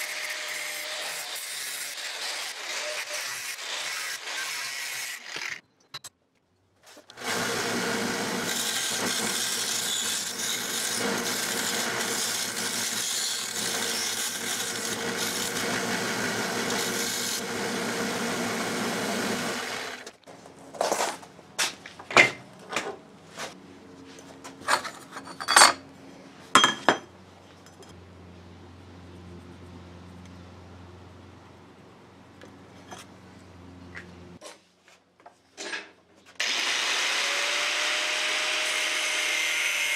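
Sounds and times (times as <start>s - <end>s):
angle grinder cutting brass sheet: 0.0s - 5.6s, 7.2s - 20.1s, 36.4s - 39.9s
belt sander grinding metal: 0.0s - 5.6s, 7.1s - 20.1s, 36.4s - 39.9s
metallic clanks on workbench: 26.6s - 27.1s.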